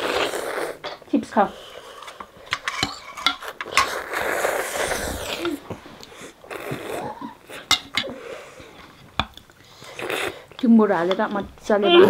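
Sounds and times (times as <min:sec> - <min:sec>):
child slurping noodles: 0:00.0 - 0:02.2, 0:03.4 - 0:08.8, 0:09.8 - 0:10.5.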